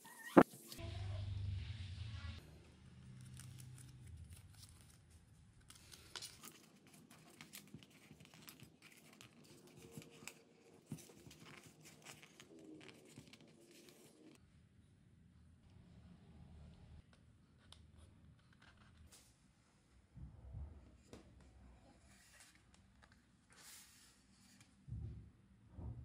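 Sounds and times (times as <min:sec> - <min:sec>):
paper rustling: 0:03.2 - 0:14.4.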